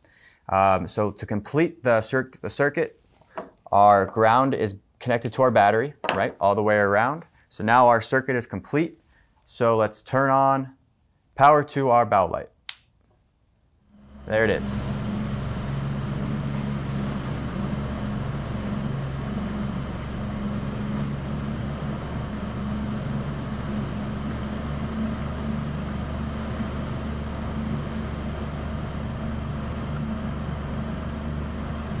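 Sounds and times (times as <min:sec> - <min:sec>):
motorboat engine hum: 0:13.9 - 0:32.0.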